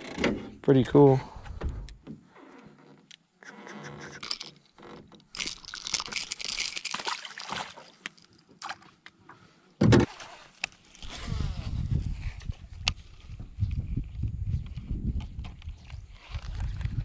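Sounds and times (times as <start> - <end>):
fish splashing in water: 6.8 - 8.0
thump against boat: 9.8 - 10.1.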